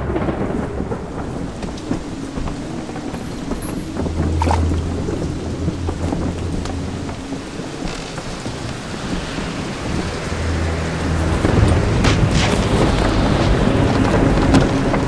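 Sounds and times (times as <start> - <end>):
heavy rain pouring: 0.0 - 15.0
low thunder rumble: 0.0 - 15.0.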